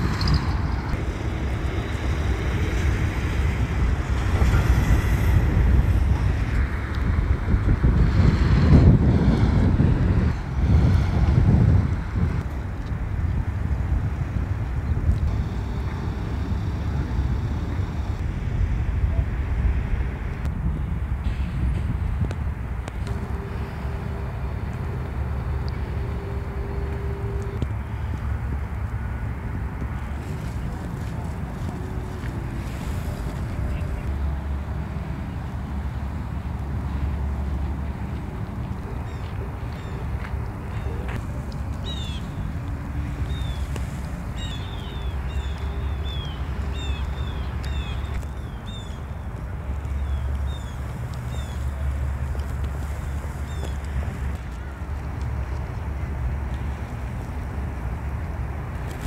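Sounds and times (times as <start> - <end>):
distant traffic rumble: 0.0 - 59.0
faint steady hum: 0.0 - 59.0
wind on microphone: 0.0 - 59.0
small birds chirping: 40.7 - 42.4, 43.2 - 49.2.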